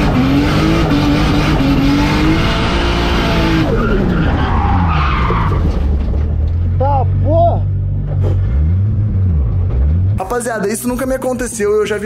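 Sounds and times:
car engine at high revs: 0:00.0 - 0:04.6, 0:07.9 - 0:10.2
tyres skidding: 0:00.0 - 0:12.0.

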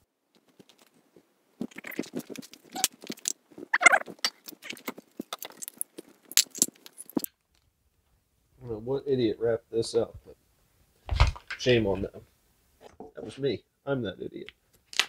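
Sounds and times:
cables rattling and rustling: 0:00.3 - 0:07.7, 0:11.1 - 0:12.2.

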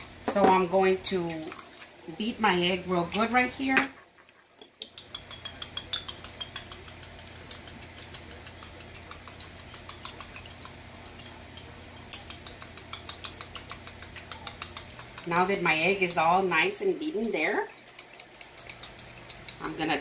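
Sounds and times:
fork clicking against glass bowl: 0:04.6 - 0:15.4, 0:17.2 - 0:19.7.

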